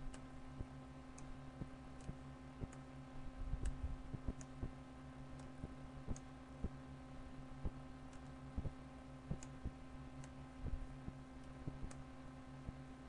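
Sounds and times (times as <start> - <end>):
low electrical hum: 0.0 - 13.0
computer mouse clicking: 1.9 - 2.9, 3.6 - 4.8, 5.4 - 6.8, 9.3 - 10.4, 11.4 - 12.1.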